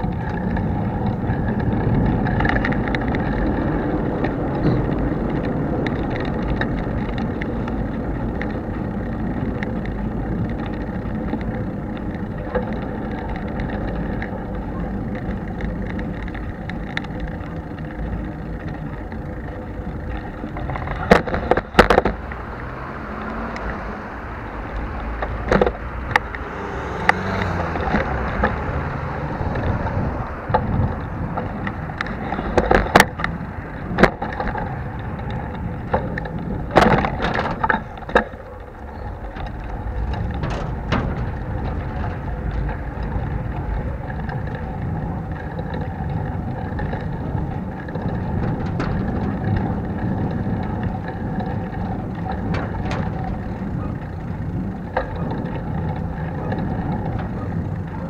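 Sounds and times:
bicycle tyres rumbling: 0:00.0 - 0:58.0
bike rattling: 0:00.0 - 0:58.0
sharp knocks and clatters: 0:39.3 - 0:43.6.

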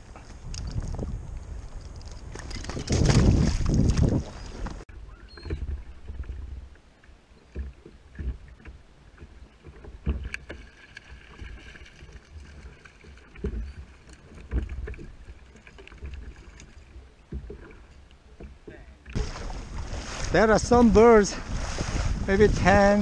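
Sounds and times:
water slapping against kayak hull: 0:02.4 - 0:04.8, 0:07.5 - 0:23.0.

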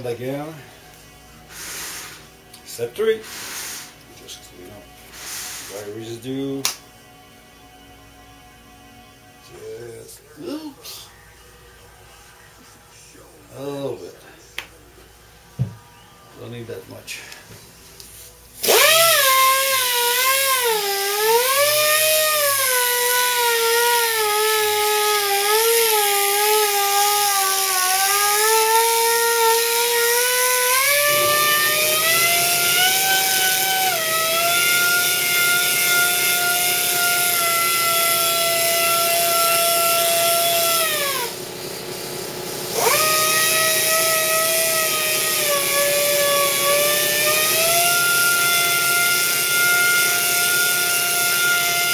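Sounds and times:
pneumatic polisher whining: 0:01.5 - 0:02.3, 0:03.2 - 0:04.0, 0:05.1 - 0:06.0, 0:18.6 - 0:51.9.

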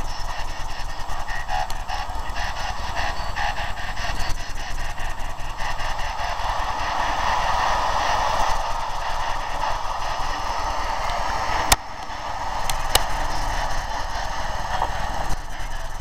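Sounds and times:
sharp clicks: 0:00.0 - 0:06.0, 0:10.7 - 0:15.4
radio static hiss: 0:00.0 - 0:16.0.

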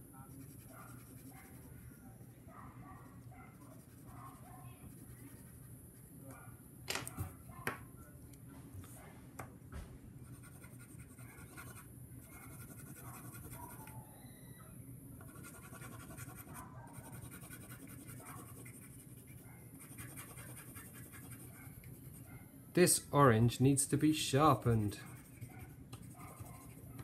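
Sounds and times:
pencil scratching on paper: 0:00.3 - 0:01.8, 0:03.2 - 0:05.7, 0:10.2 - 0:13.8, 0:15.2 - 0:22.3, 0:24.4 - 0:27.0.

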